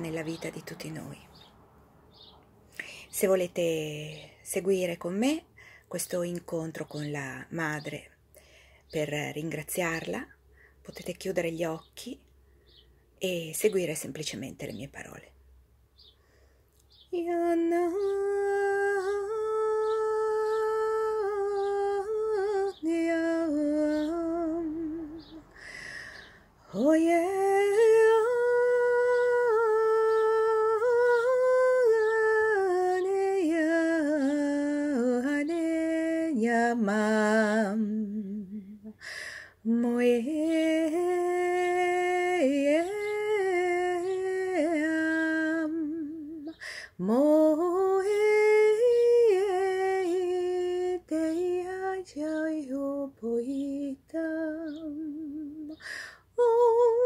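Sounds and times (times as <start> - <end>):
woman singing wordless chant: 0.0 - 1.5, 2.8 - 8.2, 8.9 - 12.3, 17.0 - 57.0
woman breathing: 2.6 - 3.1, 5.5 - 5.9, 8.3 - 8.9, 10.4 - 10.8, 16.1 - 16.8, 25.5 - 26.6, 38.9 - 39.6, 46.6 - 47.0, 55.8 - 56.3.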